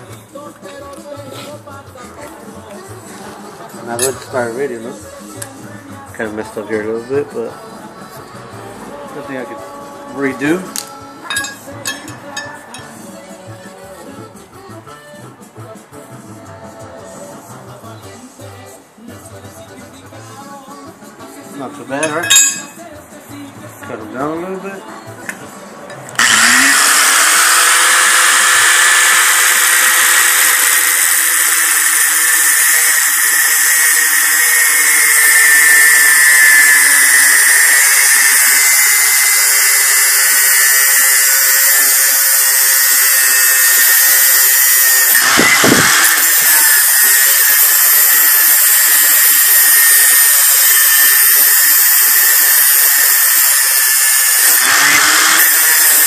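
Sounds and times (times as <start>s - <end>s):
angle grinder cutting steel: 3.7s - 5.5s, 26.1s - 56.0s.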